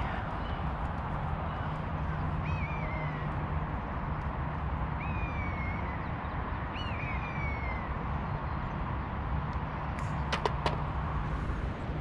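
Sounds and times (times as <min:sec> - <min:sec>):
low wind rumble: 0:00.0 - 0:12.0
putter striking golf ball: 0:10.2 - 0:10.9.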